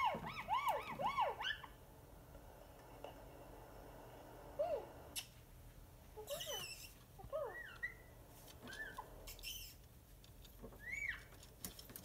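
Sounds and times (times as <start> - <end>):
parrot squawk: 0.0 - 1.8
parrot chirping: 0.0 - 1.9, 6.2 - 9.9, 10.6 - 11.4.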